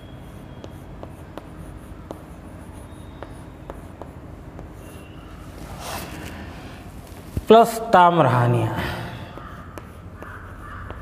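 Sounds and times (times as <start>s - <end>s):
chalk tapping on board: 0.0s - 5.4s, 9.3s - 11.0s
chalk scratching on chalkboard: 0.0s - 7.4s, 9.2s - 11.0s.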